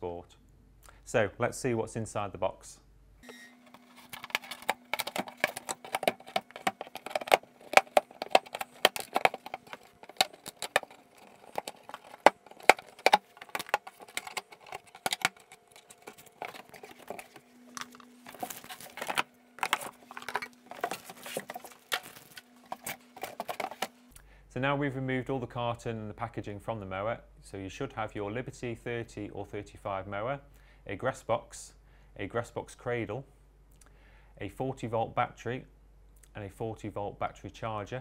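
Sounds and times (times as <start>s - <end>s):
cardboard and plastic rustling: 3.6s - 24.1s.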